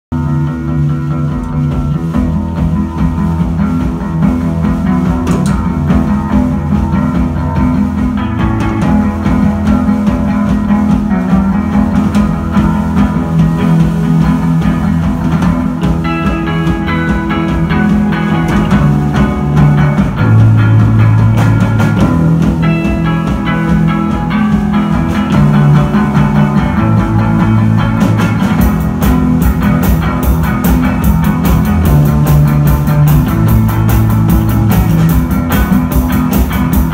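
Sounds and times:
rock band playing live: 0.1s - 36.9s.

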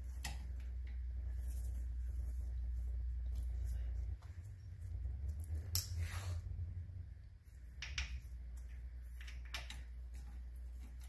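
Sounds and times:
low steady hum: 0.0s - 11.0s
metal clicks and rattles: 7.6s - 11.0s.

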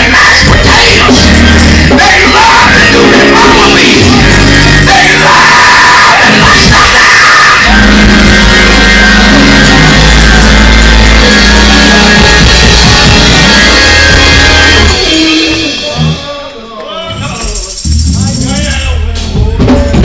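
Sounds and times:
loud distorted church music: 0.0s - 20.0s
people yelling: 1.9s - 17.4s.

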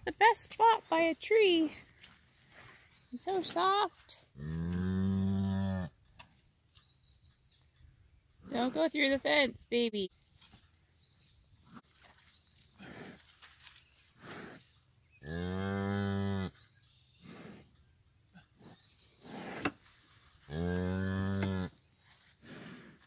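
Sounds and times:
cow mooing low: 4.4s - 5.9s, 15.2s - 16.6s, 20.5s - 21.7s.

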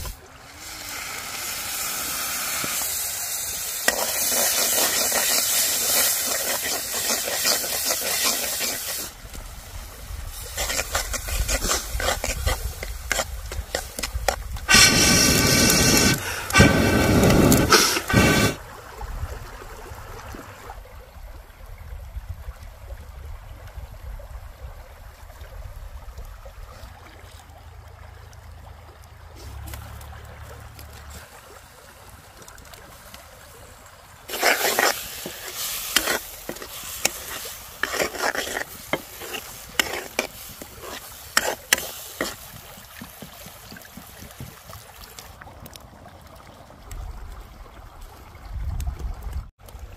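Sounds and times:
faint water stream: 0.0s - 49.9s
curry frying: 0.5s - 18.6s, 34.3s - 45.0s
ladle scraping a pan: 3.8s - 9.1s, 10.4s - 18.6s, 34.3s - 43.3s.

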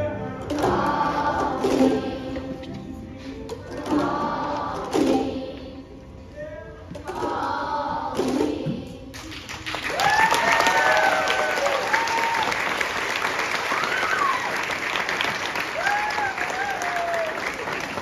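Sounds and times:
children's choir singing: 0.0s - 9.7s
audience applause: 9.4s - 18.0s
cheering and whoops: 9.8s - 12.8s, 13.6s - 14.8s, 15.6s - 17.6s.

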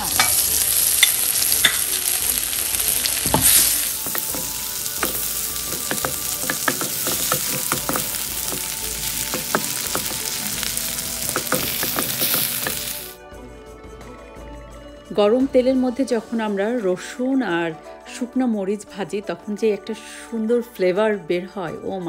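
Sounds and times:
garlic sizzling in hot oil: 0.0s - 13.2s
wooden spatula scraping a wok: 3.2s - 13.2s.

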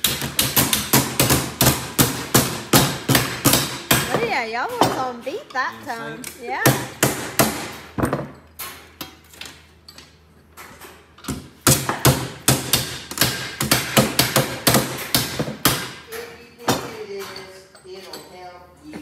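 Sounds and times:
mallet beating sheet metal: 0.0s - 5.0s, 11.6s - 16.1s.

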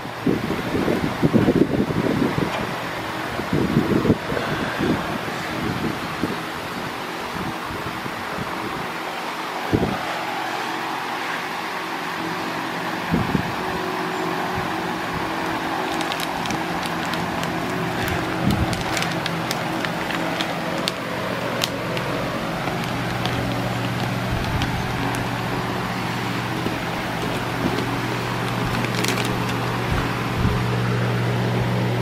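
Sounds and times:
shop fan humming: 0.0s - 32.0s
crackles of tape and paper: 14.7s - 30.4s
tape and paper peeling: 15.0s - 30.4s.

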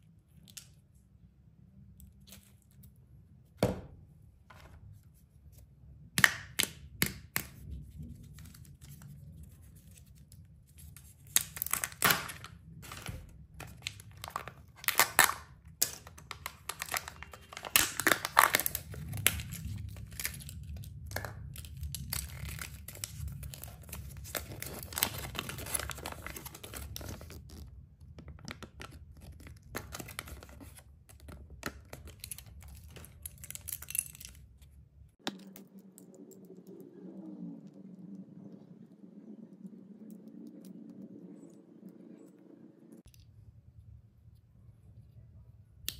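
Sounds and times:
foil wrapper crinkling and tearing: 11.2s - 27.7s.

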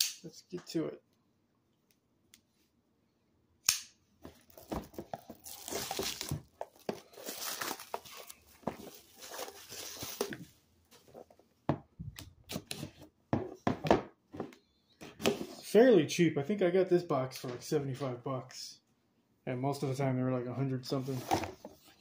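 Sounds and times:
plastic wrap crinkling: 4.3s - 10.4s.

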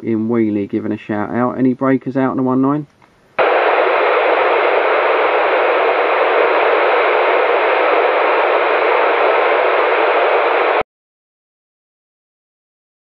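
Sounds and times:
radio static hiss: 3.4s - 10.8s.

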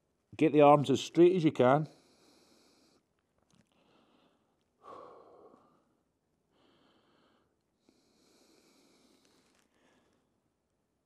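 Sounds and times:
man breathing out: 3.8s - 10.3s.

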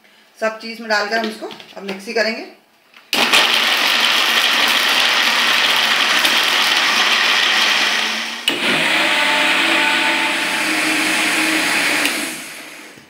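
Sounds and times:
mixer grinder motor whine: 3.2s - 13.0s.

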